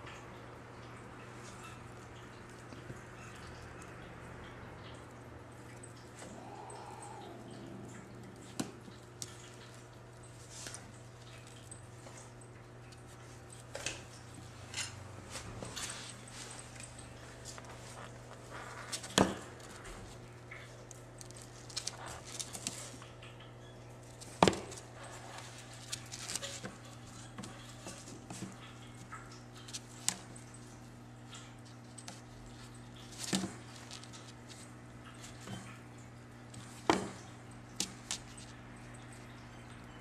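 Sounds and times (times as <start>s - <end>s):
steady low hum: 0.0s - 26.1s.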